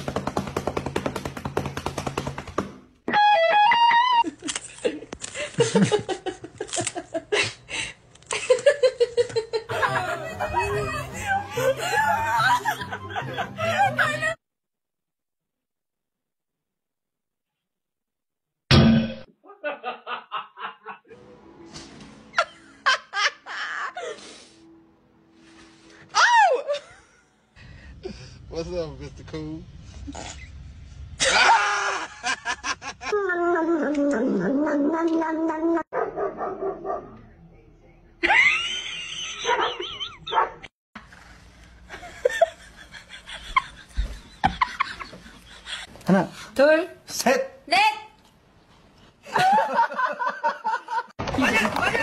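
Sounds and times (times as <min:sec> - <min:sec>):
person laughing: 0:08.3 - 0:14.4, 0:19.4 - 0:21.0
dog barking and howling: 0:35.5 - 0:37.2.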